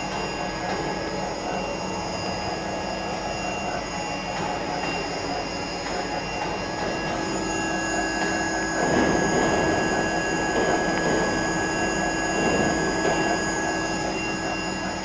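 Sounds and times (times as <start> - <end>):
high steady whining tones: 0.0 - 15.0.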